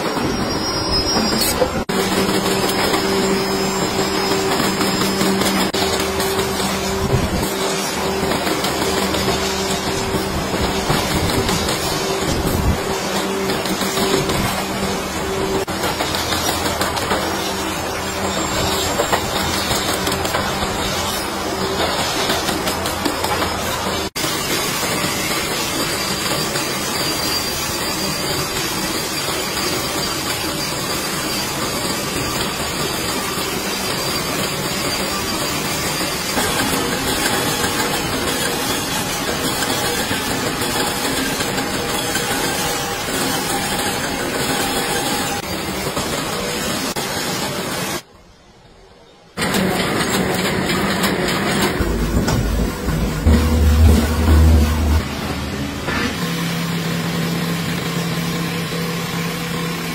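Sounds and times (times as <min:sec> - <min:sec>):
processing machine running: 0:00.0 - 0:48.1, 0:49.3 - 0:59.9
loom clicking rapidly: 0:01.8 - 0:47.0
roller press humming: 0:49.4 - 0:59.5.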